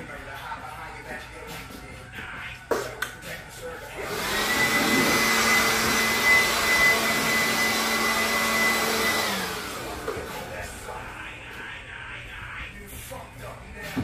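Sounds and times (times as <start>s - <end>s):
handheld vacuum motor whine: 4.0s - 10.3s.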